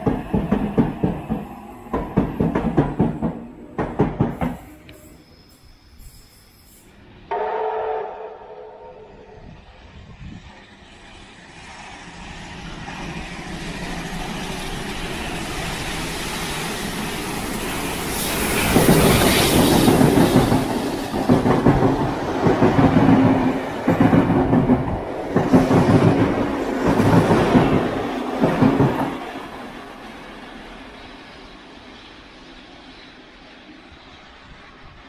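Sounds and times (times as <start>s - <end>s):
train wheels clacking over rail joints: 0.0s - 5.0s, 18.2s - 29.2s
steam locomotive passing: 0.0s - 35.0s.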